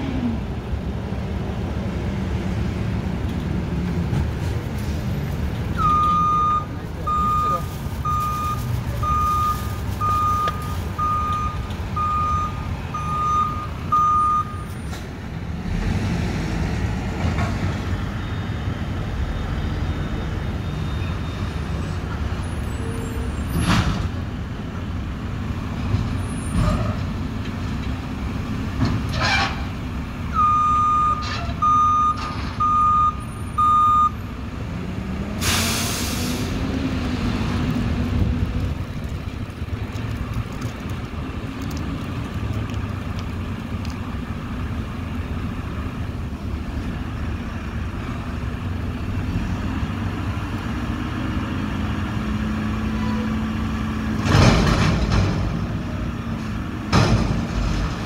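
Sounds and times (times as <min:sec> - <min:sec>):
reversing alarm beeping: 0:05.8 - 0:14.7, 0:30.4 - 0:34.2.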